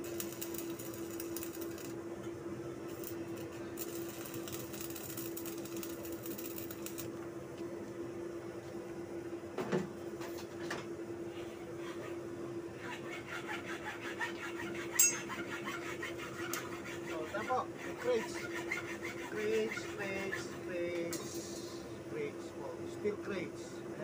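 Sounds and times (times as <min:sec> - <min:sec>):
arc welding crackling: 0:00.0 - 0:02.0, 0:02.8 - 0:07.2
steady hum: 0:00.0 - 0:24.0.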